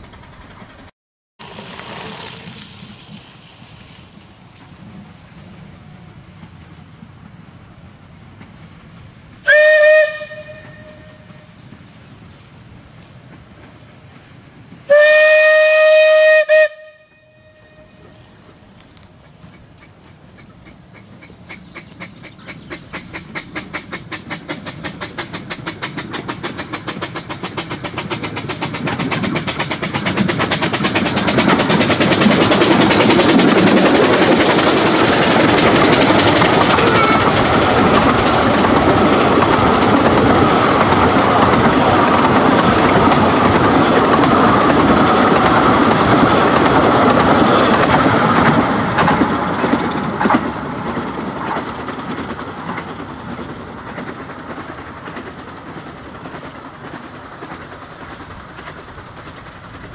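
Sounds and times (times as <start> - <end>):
steam locomotive exhaust beats: 0.0 - 59.9
coaches clattering over rail joints: 19.2 - 59.9.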